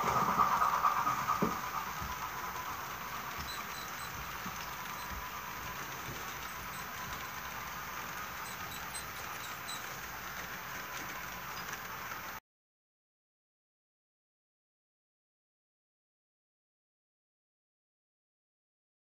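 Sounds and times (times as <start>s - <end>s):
model train running hiss: 0.0s - 12.4s
wheel clicks: 0.0s - 12.4s.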